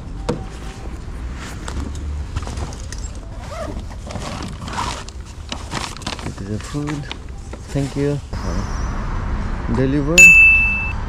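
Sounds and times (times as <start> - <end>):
bag rustling: 0.4 - 8.3
low rumble: 8.3 - 11.0.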